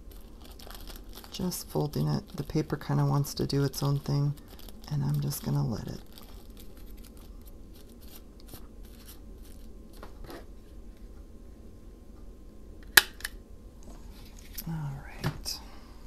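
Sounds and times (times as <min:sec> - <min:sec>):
paper rustling and creasing: 0:00.0 - 0:11.0.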